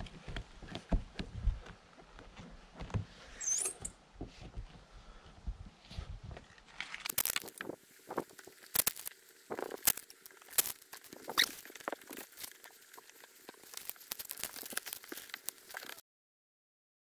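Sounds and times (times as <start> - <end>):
short high squeak: 3.3 - 3.9
tape liner crinkling: 6.6 - 16.0.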